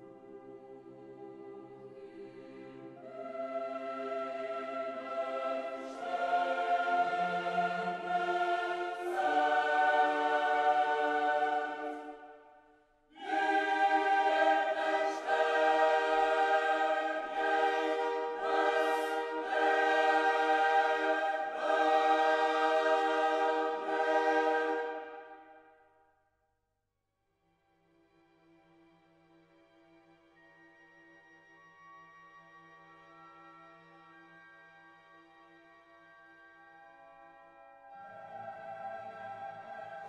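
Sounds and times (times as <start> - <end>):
choir-like voices sustained chords: 0.0 - 25.9, 37.8 - 40.0.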